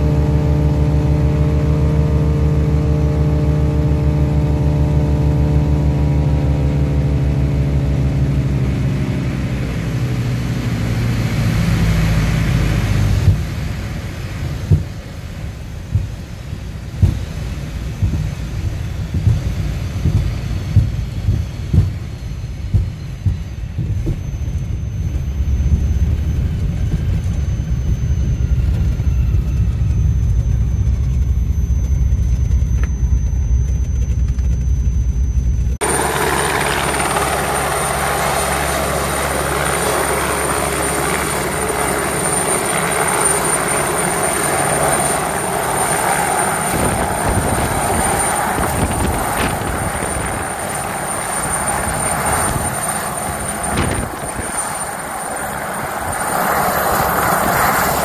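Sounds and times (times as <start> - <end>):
deep drone of aircraft engines: 0.0 - 58.0
helicopter rotor noise: 0.0 - 58.0
helicopter turbine whine: 0.0 - 58.0
bumps and thumps from rough ground: 16.9 - 24.3, 53.6 - 54.6.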